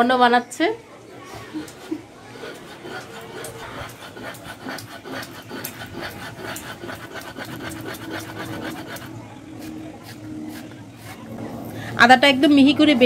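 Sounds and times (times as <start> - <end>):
stone roller rasping on stone: 1.3 - 11.3.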